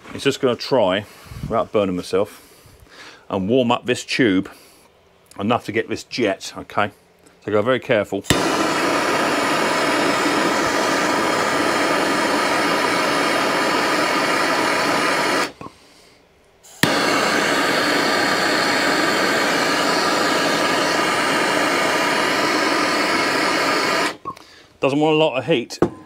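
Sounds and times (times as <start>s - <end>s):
gas torch hissing: 8.3s - 15.7s, 16.6s - 24.4s
torch ignition click: 8.3s - 15.7s, 16.7s - 24.5s.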